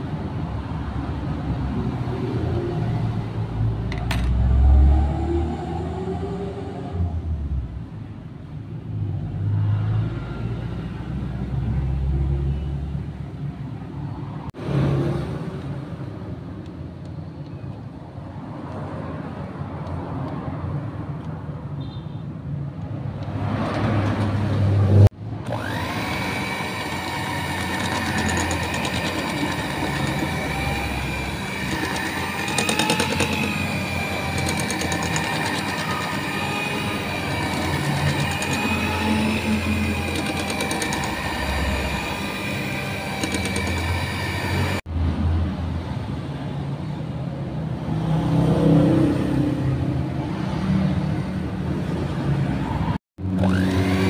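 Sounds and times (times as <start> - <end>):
electric hand mixer running: 25.4 - 44.8, 53.4 - 54.0.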